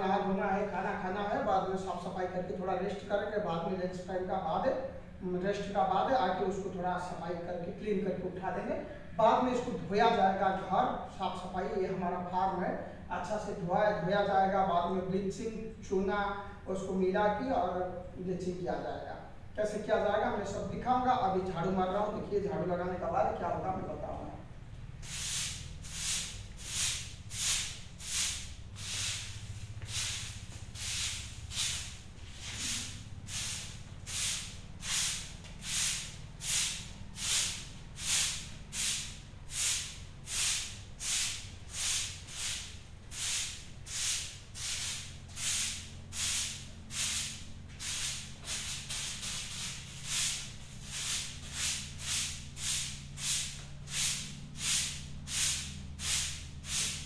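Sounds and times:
broom sweeping concrete floor: 24.9 - 57.0.

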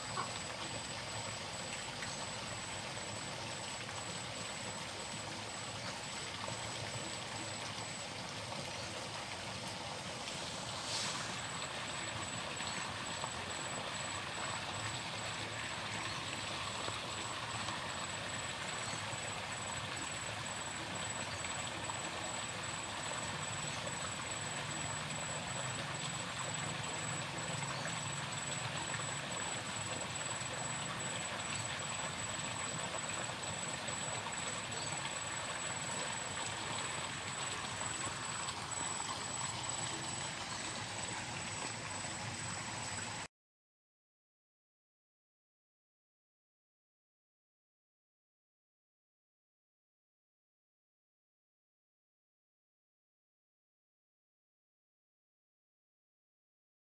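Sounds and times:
small stream flowing: 0.0 - 43.3.

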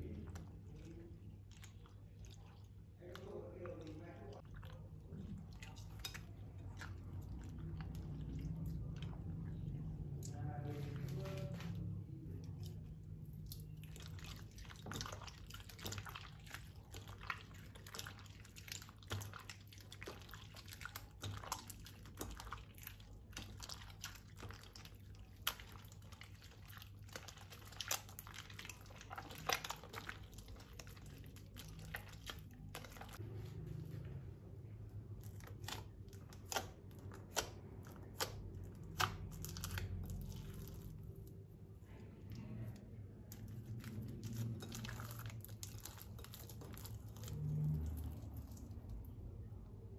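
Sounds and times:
faint low hum: 0.0 - 49.9
slime squished by hand: 35.1 - 49.2.

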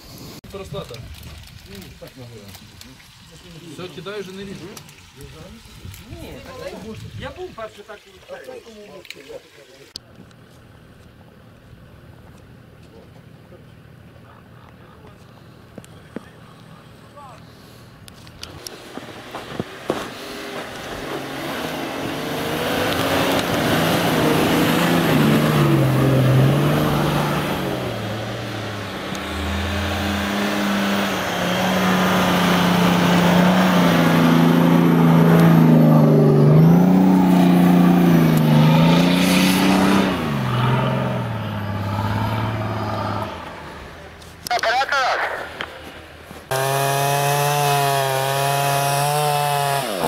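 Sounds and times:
engine revving under load: 18.4 - 44.5, 46.5 - 50.0.

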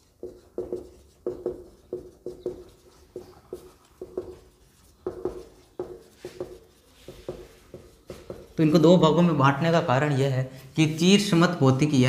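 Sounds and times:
marker squeaking on whiteboard: 0.0 - 9.0.

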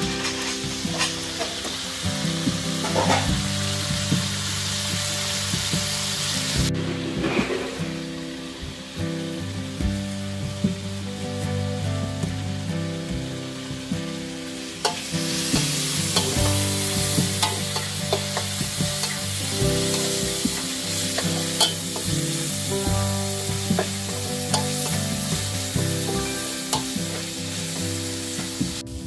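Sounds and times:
food sizzling in a wok: 0.0 - 29.0
metal spatula scraping a wok: 14.8 - 22.5, 23.8 - 25.4.

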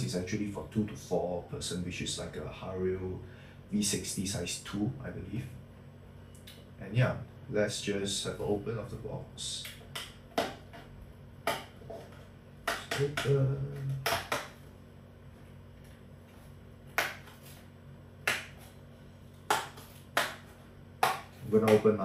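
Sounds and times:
person humming: 12.9 - 14.2.

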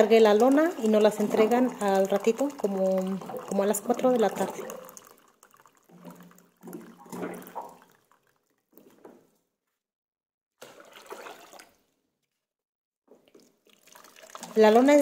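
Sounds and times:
water running into plastic cup: 0.0 - 8.5, 13.2 - 15.0
water poured into plastic bucket: 0.0 - 9.2, 10.6 - 12.0, 13.2 - 15.0.

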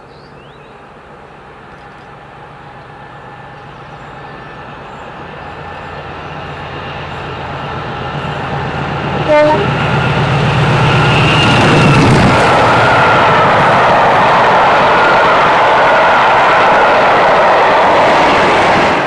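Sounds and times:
diesel locomotive engine: 0.0 - 19.0
train horn toot: 9.2 - 9.9.

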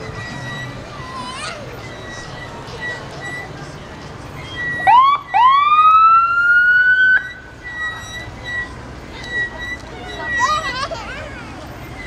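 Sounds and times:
vehicle siren whooping: 4.6 - 8.0.

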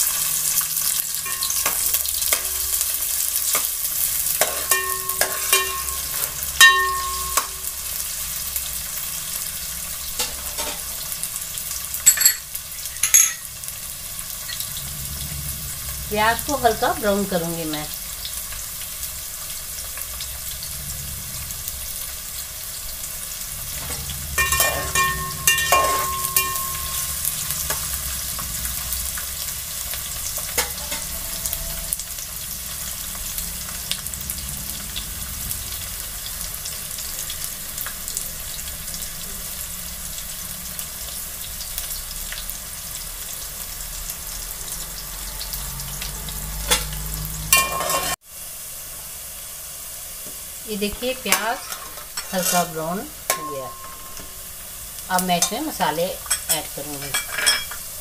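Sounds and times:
onions sizzling in oil: 0.0 - 58.0
spoon knocking against pot: 4.4 - 7.6
metallic clinks: 12.1 - 13.5.

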